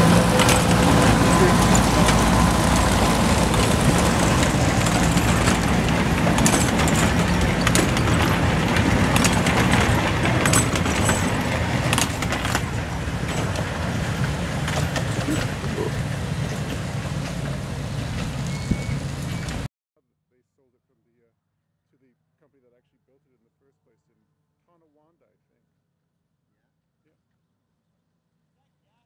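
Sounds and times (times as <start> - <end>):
diesel locomotive engine running: 0.0 - 19.7
train cars rattling on track: 0.0 - 19.7.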